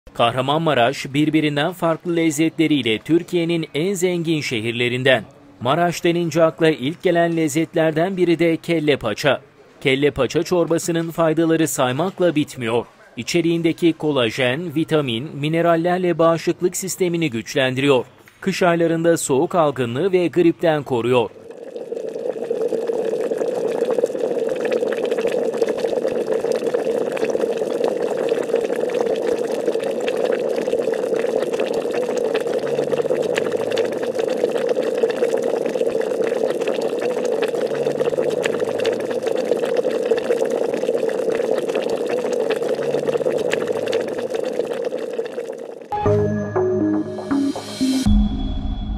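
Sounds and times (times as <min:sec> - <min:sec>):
soup bubbling in a metal bowl: 0:20.8 - 0:45.9.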